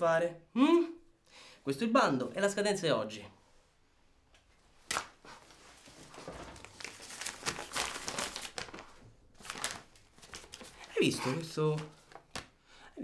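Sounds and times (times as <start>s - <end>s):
paper crinkling and rustling: 4.9s - 12.6s.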